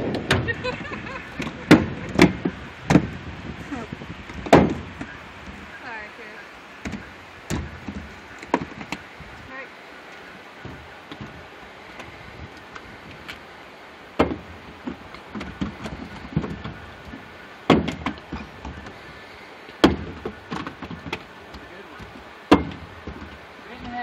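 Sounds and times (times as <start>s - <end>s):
river water rushing: 0.0s - 24.0s
knocks on metal boat: 1.4s - 3.2s, 4.4s - 5.1s, 22.0s - 24.0s.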